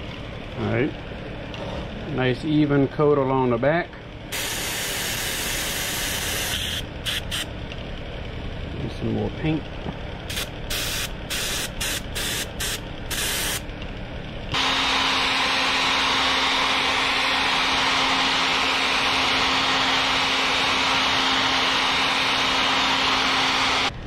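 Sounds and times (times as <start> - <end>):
airbrush hissing bursts: 4.3 - 7.5, 10.3 - 13.6
hair dryer humming: 14.6 - 23.9.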